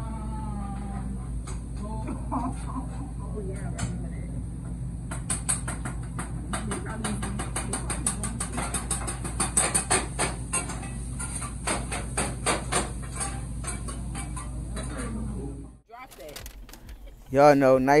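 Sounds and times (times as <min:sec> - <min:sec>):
steady low hum: 0:00.0 - 0:18.0
metal spatulas clanking on griddle: 0:07.6 - 0:15.1.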